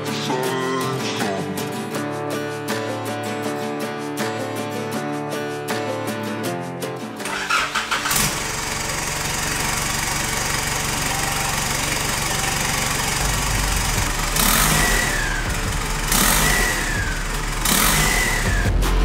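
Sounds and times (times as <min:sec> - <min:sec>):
diesel engine cranking and idling: 0:07.2 - 0:18.9
engine revving: 0:07.2 - 0:19.0.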